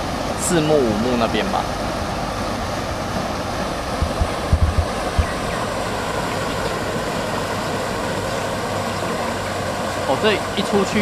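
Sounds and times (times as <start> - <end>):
fountain aerator churning water: 0.0 - 11.0
low thumps: 3.9 - 5.6.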